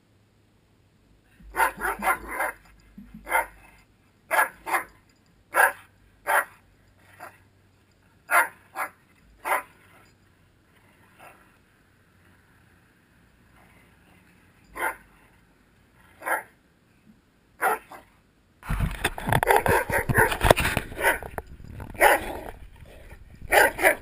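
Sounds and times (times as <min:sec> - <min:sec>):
dog barking: 0:01.5 - 0:02.6, 0:03.2 - 0:03.6, 0:04.3 - 0:04.9, 0:05.5 - 0:06.6, 0:08.3 - 0:09.7, 0:14.8 - 0:15.0, 0:16.2 - 0:16.5, 0:17.6 - 0:18.1, 0:19.4 - 0:20.4, 0:21.0 - 0:21.3, 0:22.0 - 0:22.5, 0:23.5 - 0:24.0.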